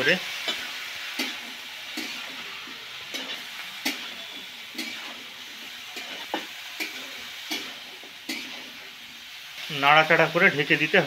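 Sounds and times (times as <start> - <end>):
vegetables sizzling in oil: 0.0 - 11.0
metal spatula scraping pan: 0.4 - 9.5.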